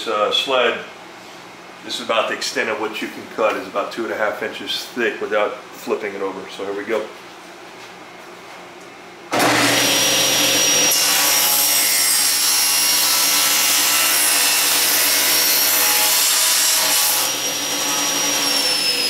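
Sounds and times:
table saw cutting metal tube: 9.3s - 19.0s.

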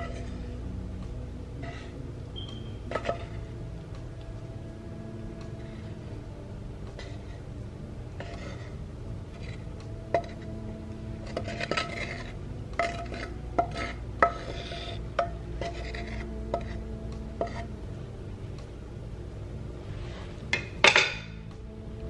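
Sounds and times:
spatula scraping frying pan: 0.0s - 0.5s, 1.6s - 2.0s, 2.9s - 3.5s, 7.0s - 7.5s, 8.1s - 17.7s
pan tapping bowl rim: 10.1s - 10.4s, 12.8s - 16.8s.

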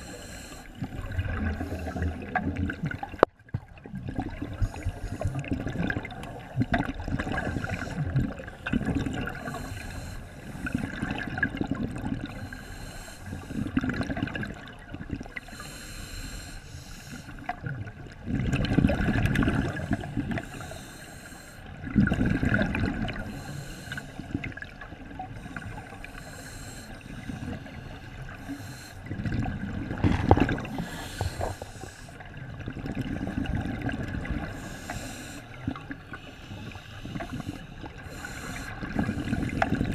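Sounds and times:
regulator hiss on inhale: 0.0s - 2.4s, 4.5s - 5.5s, 7.3s - 8.4s, 9.4s - 10.9s, 12.3s - 13.8s, 15.4s - 17.5s, 19.7s - 21.8s, 23.2s - 24.4s, 25.3s - 29.1s, 30.7s - 32.3s, 34.4s - 39.9s
bubbling exhaust underwater: 0.0s - 39.9s.

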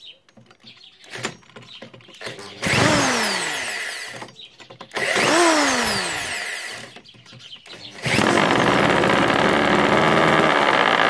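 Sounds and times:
corded drill whining: 2.2s - 7.0s, 7.7s - 11.0s
two-stroke engine running: 2.3s - 4.2s, 5.0s - 7.0s, 7.7s - 11.0s.

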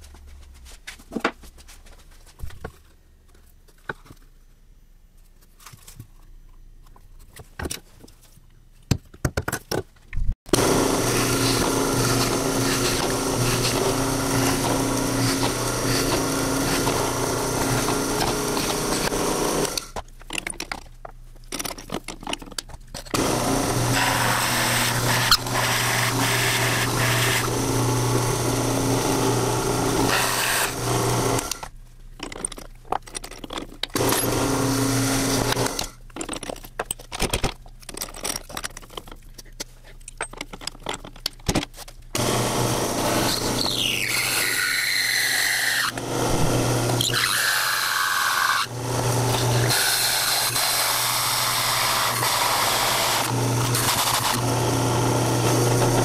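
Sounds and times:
drill press boring into plywood: 10.5s - 20.0s, 23.2s - 31.7s, 34.0s - 35.9s, 42.2s - 56.0s.

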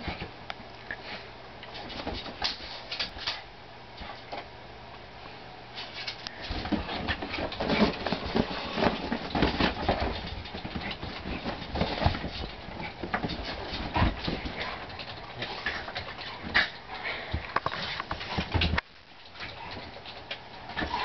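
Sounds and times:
thumps and scuffles of paws: 1.7s - 3.3s, 5.8s - 18.8s.

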